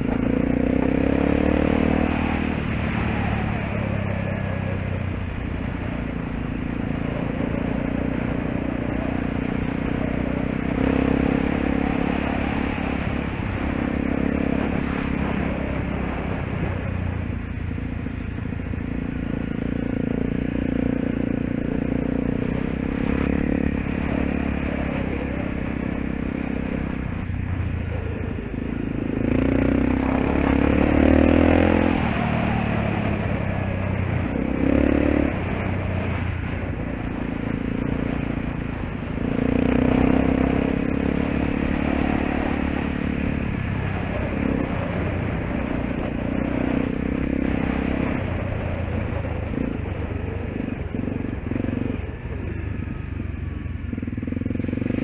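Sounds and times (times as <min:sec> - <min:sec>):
dirt bike engine revving: 0:00.0 - 0:04.1, 0:06.2 - 0:16.6, 0:19.1 - 0:27.3, 0:28.7 - 0:50.0.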